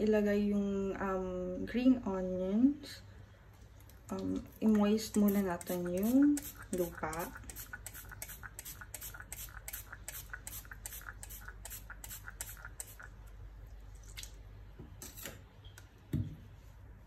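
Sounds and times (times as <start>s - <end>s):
spray bottle spraying: 5.1s - 13.1s.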